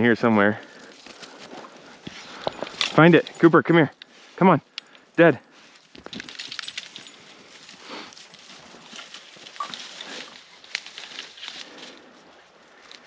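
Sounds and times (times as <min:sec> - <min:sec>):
rustling through dry grass: 0:00.0 - 0:03.5, 0:05.5 - 0:13.0.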